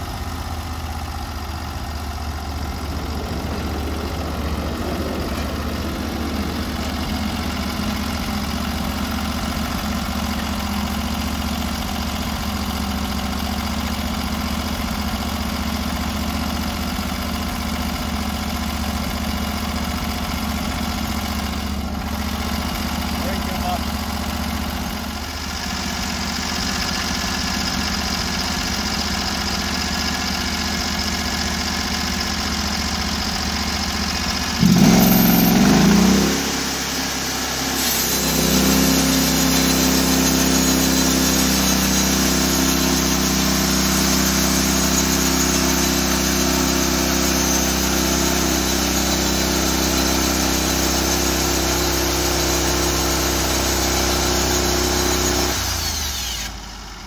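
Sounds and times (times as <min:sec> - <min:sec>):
gas engine running and revving: 0:00.0 - 0:12.1, 0:26.4 - 0:56.8
band blade sawing log: 0:37.5 - 0:56.5.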